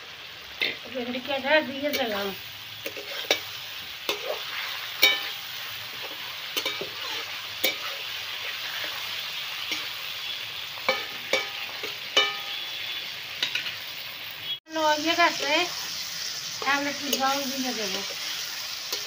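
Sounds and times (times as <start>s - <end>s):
vegetables sizzling in oil: 0.0s - 19.0s
metal spatula knocking and scraping pan: 4.1s - 7.9s, 10.9s - 12.6s.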